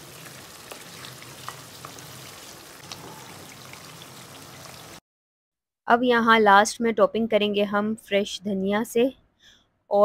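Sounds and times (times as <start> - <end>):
chicken sizzling in oil: 0.0 - 5.0.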